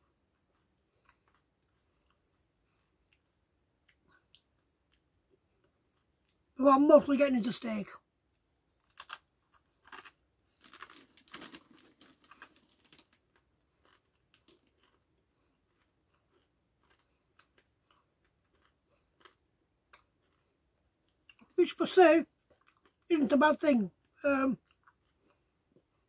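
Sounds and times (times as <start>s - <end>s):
potato crisp crunching: 8.8s - 21.6s.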